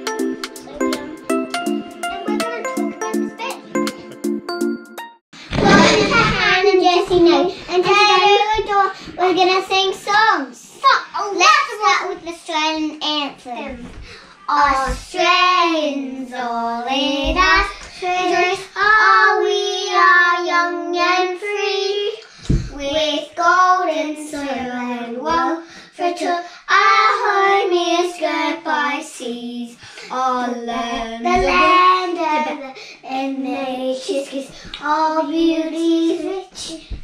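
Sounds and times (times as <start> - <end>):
girls singing: 14.5 - 37.0.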